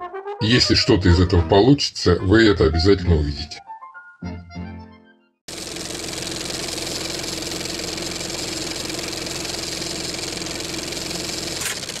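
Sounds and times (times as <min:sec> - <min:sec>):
film projector whirring: 0:05.5 - 0:12.0.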